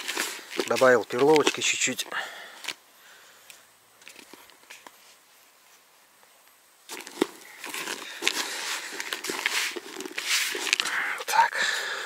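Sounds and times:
hand kneading gritty bait: 0.0s - 2.8s.

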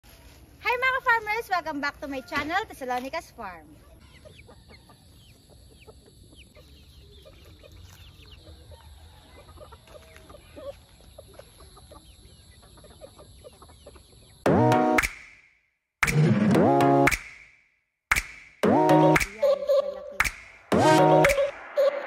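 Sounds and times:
hens clucking: 3.7s - 14.5s, 19.0s - 22.0s
high-pitched falling calls: 18.7s - 22.0s.

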